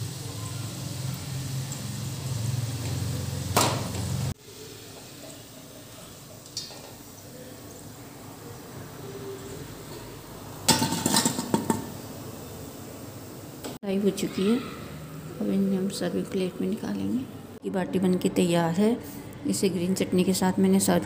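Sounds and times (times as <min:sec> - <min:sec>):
oil sizzling deep-frying: 0:00.0 - 0:17.6
metal clattering into steel bowl: 0:10.6 - 0:12.0.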